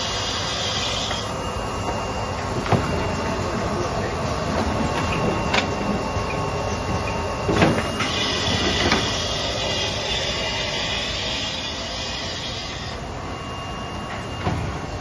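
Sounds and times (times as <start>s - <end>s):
machine mechanical noise: 0.0s - 15.0s
thin high whine: 0.0s - 15.0s.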